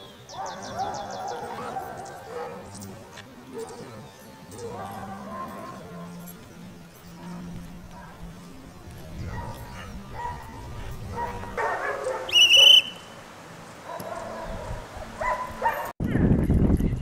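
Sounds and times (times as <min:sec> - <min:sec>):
puppy barking and yipping: 0:09.2 - 0:13.2, 0:13.9 - 0:15.9
high-pitched whistle-like tone: 0:12.3 - 0:13.2.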